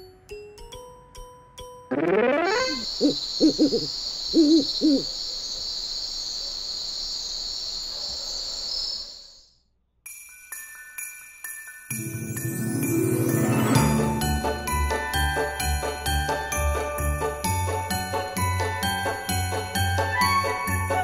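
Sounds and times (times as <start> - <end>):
soft music with bell-like chimes: 0.0 - 1.9, 10.0 - 21.0
high-pitched background tone: 1.9 - 5.0
owl hooting: 1.9 - 5.3.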